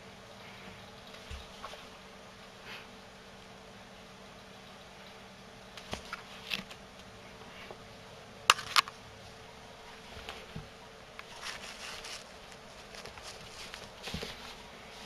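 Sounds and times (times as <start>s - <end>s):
cat scuffling and scratching: 9.9s - 15.0s.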